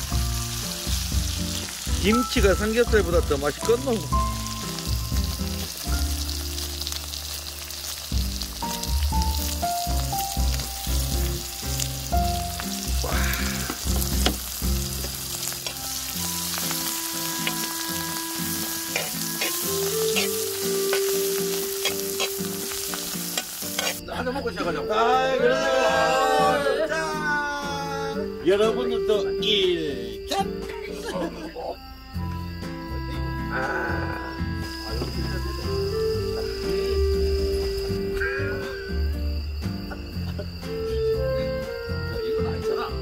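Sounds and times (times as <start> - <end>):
meat sizzling on grill pan: 0.0 - 24.0
quiet music: 0.0 - 43.0
tongs clicking and scraping: 15.0 - 16.8, 17.4 - 24.0.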